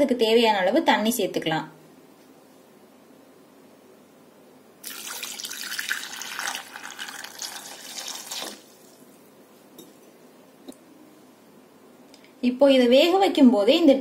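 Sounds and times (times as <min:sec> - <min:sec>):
water pouring into pot: 0:04.8 - 0:09.0.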